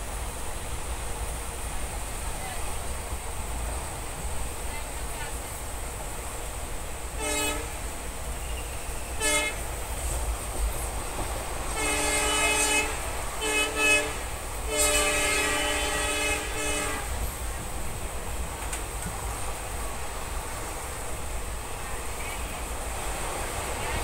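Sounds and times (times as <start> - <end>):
moving train rumble: 0.0 - 24.0
train horn blasts: 7.2 - 7.9, 8.5 - 9.8, 11.7 - 17.3.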